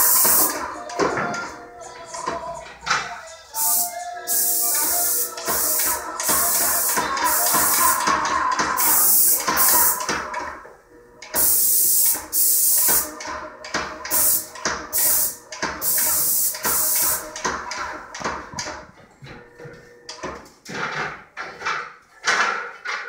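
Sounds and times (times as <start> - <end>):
paint sprayer hissing: 0.0 - 0.7, 3.6 - 10.2, 11.3 - 17.6.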